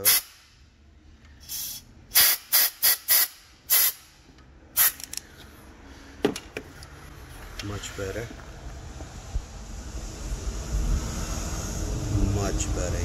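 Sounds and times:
air blow gun hissing blasts: 0.0 - 0.5, 1.4 - 4.1.

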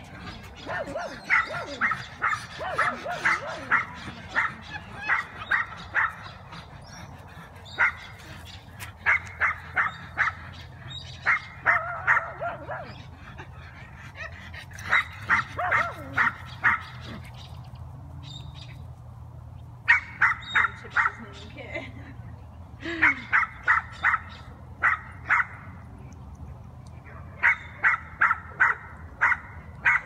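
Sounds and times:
small dog barking: 15.0 - 16.8.

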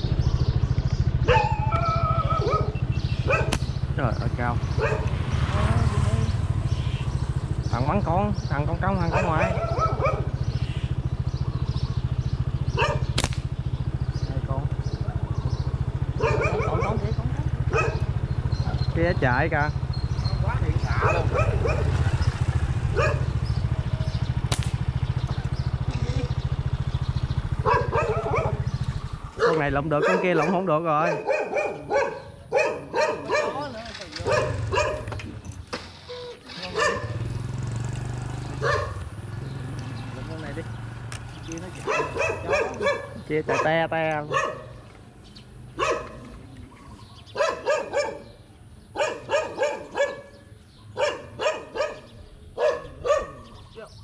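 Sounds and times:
engine idling: 0.0 - 30.5
dog barking: 1.2 - 3.7, 4.7 - 5.2, 9.0 - 10.4, 12.7 - 13.2, 16.1 - 18.8, 20.8 - 22.2, 22.8 - 23.4, 27.6 - 35.2, 36.6 - 37.4, 38.6 - 39.1, 41.8 - 44.8, 45.8 - 46.4, 47.2 - 53.7
sharp click: 3.5 - 3.7, 13.2 - 13.5, 24.5 - 24.8.

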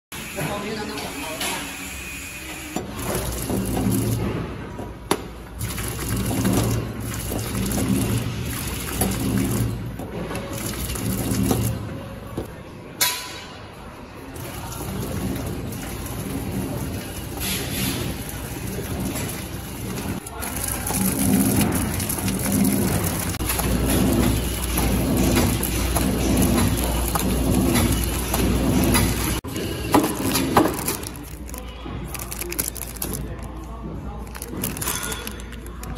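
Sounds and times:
packing machine running: 2.4 - 4.7, 5.5 - 12.4, 14.4 - 35.9
packing machine motor hum: 18.5 - 33.1.

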